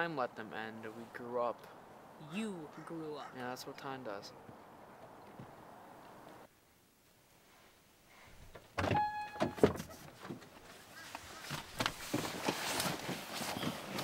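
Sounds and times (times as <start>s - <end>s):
knocks and rustles: 8.5s - 14.0s
car door opening: 8.8s - 10.4s
brief steady tone: 8.9s - 9.7s.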